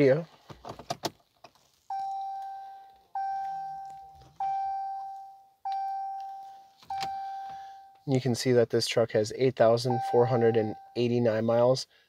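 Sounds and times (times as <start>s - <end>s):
electronic warning chime: 1.9s - 8.0s, 9.9s - 11.3s.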